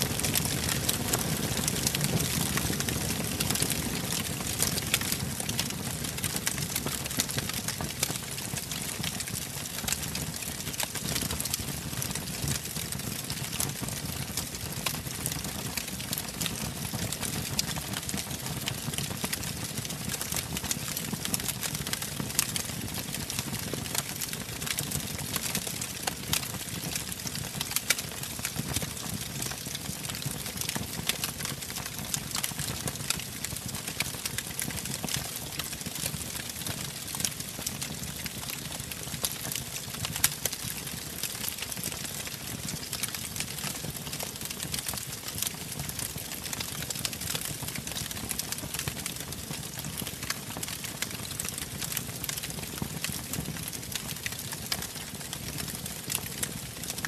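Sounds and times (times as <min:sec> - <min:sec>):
burning wood crackling: 0:00.0 - 0:10.6, 0:34.5 - 0:48.4, 0:51.5 - 0:52.5.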